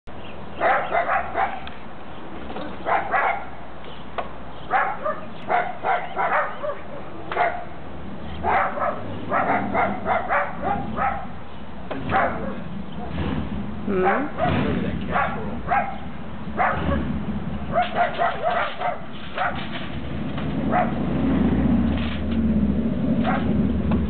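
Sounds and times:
dog barking: 0.6s - 1.7s, 2.8s - 3.6s, 4.7s - 7.8s, 8.4s - 11.4s, 12.1s - 12.7s, 14.0s - 17.1s, 17.7s - 19.6s, 20.7s - 21.0s, 23.2s - 23.6s.

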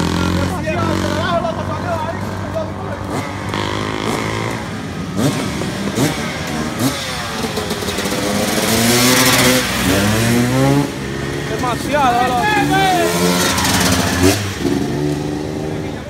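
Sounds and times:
dirt bike engines revving: 0.0s - 16.0s.

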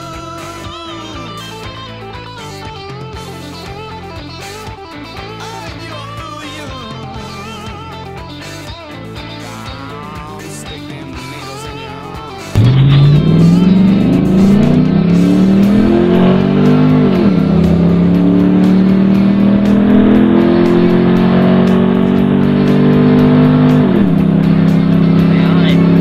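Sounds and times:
pickup engine accelerating hard: 12.5s - 26.0s.

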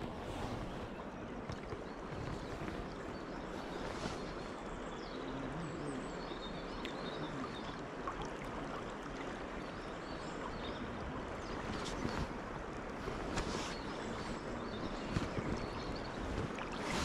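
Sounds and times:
faint bird chirps: 2.0s - 7.9s
river rushing: 7.3s - 17.0s.

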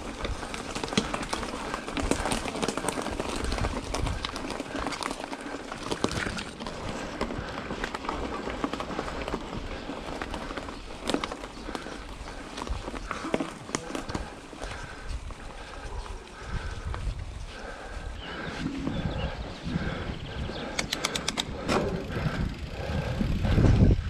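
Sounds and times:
wind rumble on microphone: 0.0s - 4.9s, 14.1s - 24.0s
bike clicks and rattles: 0.0s - 24.0s
bike tyre noise on dirt: 0.0s - 24.0s.

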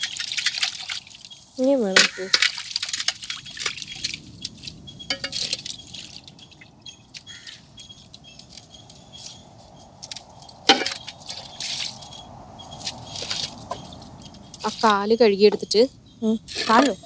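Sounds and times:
water pouring into metal pot: 0.0s - 1.5s
water splashing and dripping: 0.0s - 15.8s
shells clinking against pots: 5.1s - 5.7s.

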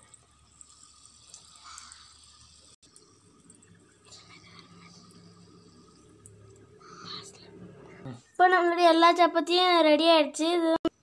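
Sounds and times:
hot oil sizzling: 0.0s - 7.0s.

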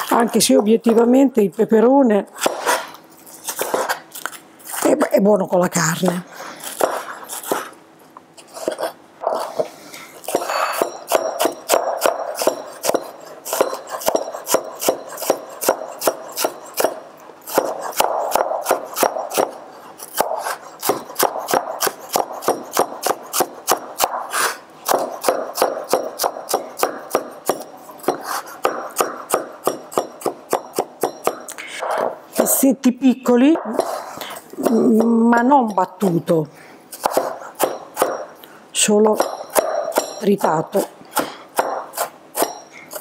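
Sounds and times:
knife chopping on cutting board: 2.4s - 2.9s, 6.6s - 7.7s, 8.5s - 32.1s, 36.9s - 38.3s, 39.1s - 43.0s.

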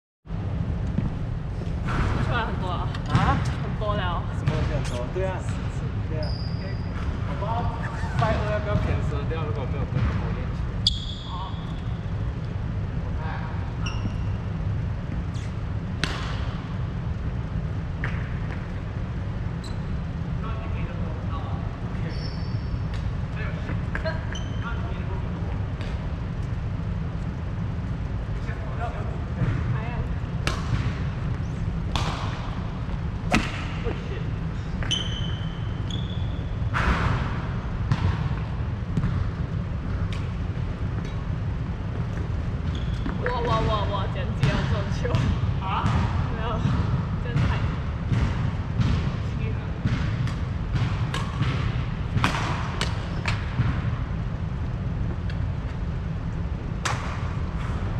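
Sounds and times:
shoe squeak on court floor: 6.2s - 7.1s, 10.8s - 11.9s, 13.8s - 14.6s, 15.3s - 15.6s, 19.6s - 20.0s, 22.0s - 22.9s, 24.1s - 24.8s, 34.7s - 36.7s, 42.6s - 43.3s
racket hitting shuttlecock: 30.4s - 31.1s, 31.9s - 32.6s, 33.2s - 33.9s, 49.8s - 53.8s.

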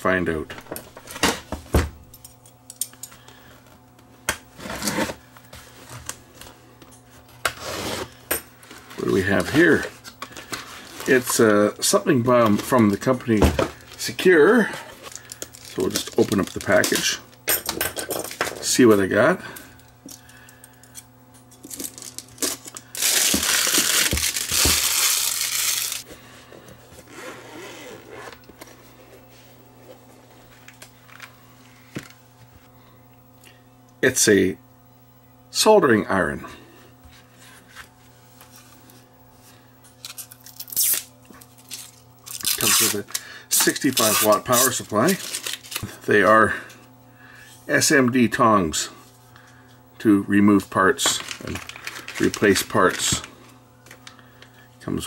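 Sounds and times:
rustling and handling: 4.5s - 18.9s, 21.4s - 32.7s, 40.0s - 46.0s
plastic wrapping rustling: 15.0s - 17.2s, 21.7s - 26.1s, 40.1s - 45.9s, 51.0s - 53.3s.

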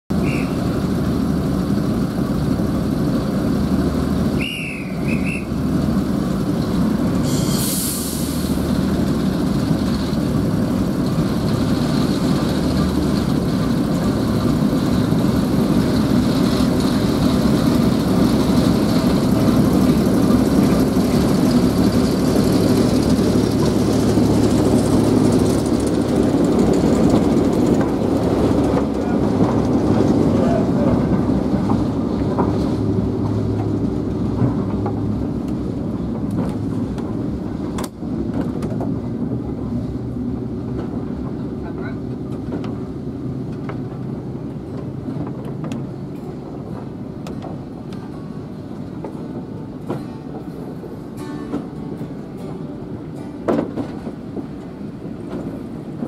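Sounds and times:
diesel locomotive engine running: 0.1s - 56.0s
high squeal: 7.2s - 8.1s
short hiss: 7.3s - 8.5s.

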